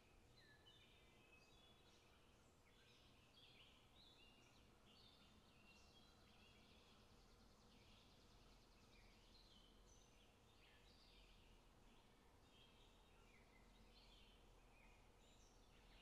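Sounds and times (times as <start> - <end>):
faint bird-like chirping: 0.0 - 16.0.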